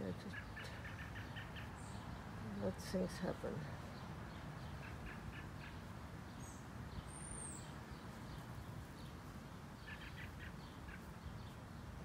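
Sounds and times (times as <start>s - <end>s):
faint bird chirps: 3.6s - 12.0s.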